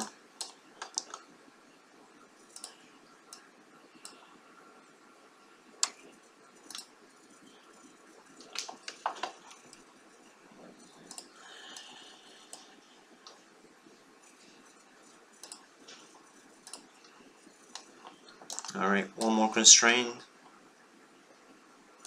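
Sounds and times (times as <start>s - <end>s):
faint computer mouse clicks: 2.5s - 4.2s, 15.4s - 19.3s.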